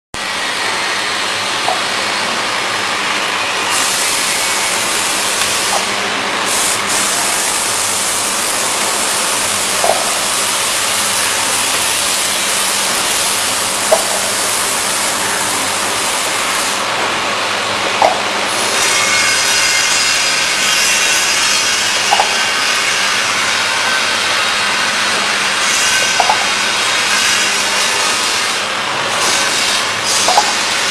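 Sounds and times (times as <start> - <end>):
machine clatter and hiss: 0.2 - 30.9
sharp machine knock: 1.6 - 2.0, 3.7 - 6.0, 8.8 - 15.1, 17.9 - 19.7, 20.8 - 22.9, 25.1 - 26.8, 30.1 - 30.9.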